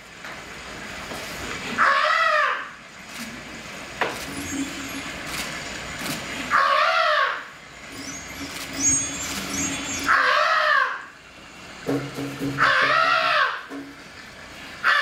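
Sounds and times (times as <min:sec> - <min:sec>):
high wailing vocal cry: 0:06.5 - 0:07.5, 0:08.1 - 0:11.1, 0:12.6 - 0:13.7.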